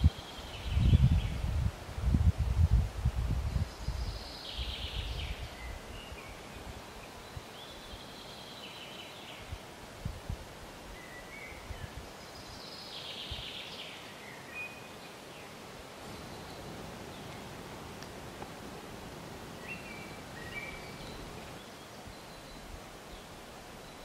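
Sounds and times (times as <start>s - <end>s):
songbirds singing: 0.0s - 1.7s, 3.3s - 9.7s, 10.9s - 24.0s
faint outdoor background noise: 0.0s - 24.0s.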